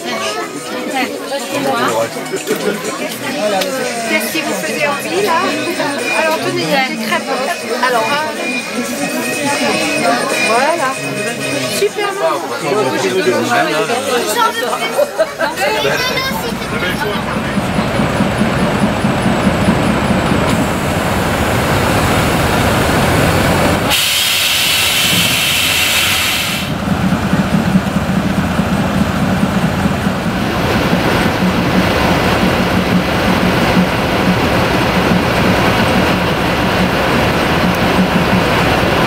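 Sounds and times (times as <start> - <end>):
diesel locomotive engine humming: 13.0 - 39.0
air hiss: 23.5 - 26.8.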